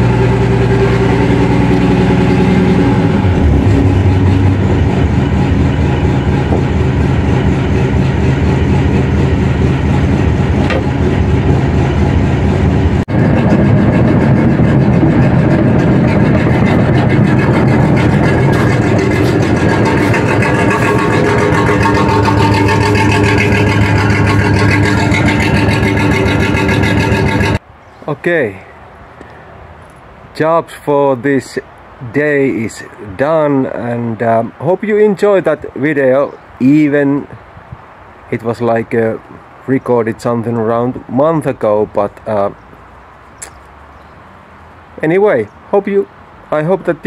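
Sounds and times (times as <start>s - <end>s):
diesel engine running: 0.0s - 27.7s.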